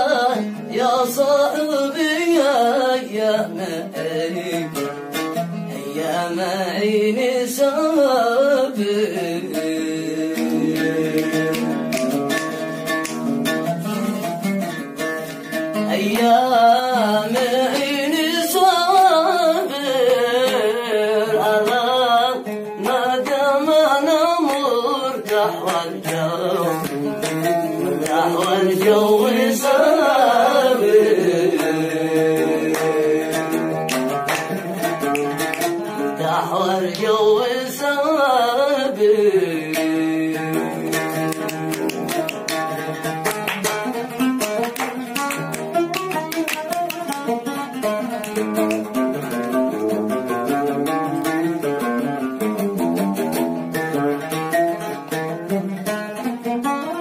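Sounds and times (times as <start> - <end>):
man singing: 0.0 - 12.3, 15.7 - 42.9, 47.9 - 52.4
plucked oud notes: 0.0 - 57.0.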